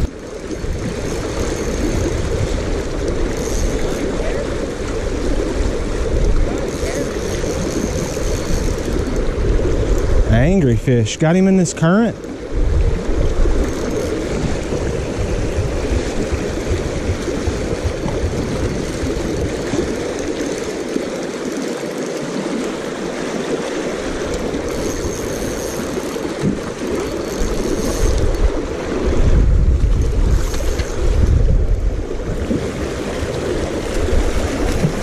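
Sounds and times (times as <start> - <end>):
wind rumble on microphone: 0.0 - 11.0, 12.4 - 20.8, 24.0 - 35.0
creek water rushing over rocks: 9.3 - 29.2.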